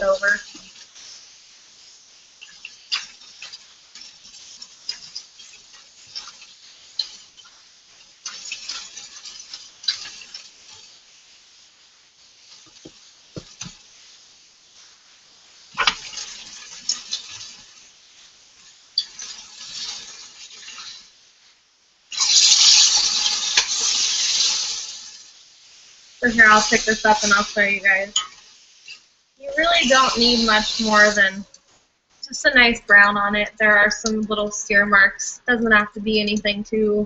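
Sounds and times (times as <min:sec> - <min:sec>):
meat sizzling in hot oil: 0:00.0 - 0:36.5
utensils clicking against pot: 0:08.2 - 0:10.5, 0:22.1 - 0:24.6, 0:28.1 - 0:29.0.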